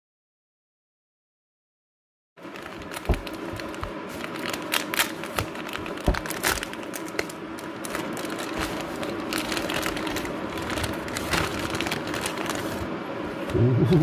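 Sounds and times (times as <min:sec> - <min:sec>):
crinkling and clicking handling noise: 0:02.4 - 0:12.9.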